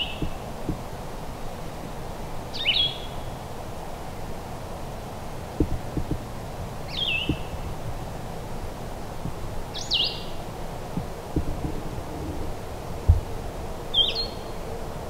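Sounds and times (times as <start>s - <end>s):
low background noise: 0.0s - 15.0s
songbird whistled calls: 2.6s - 3.2s, 6.9s - 7.5s, 9.8s - 10.4s, 13.9s - 14.5s.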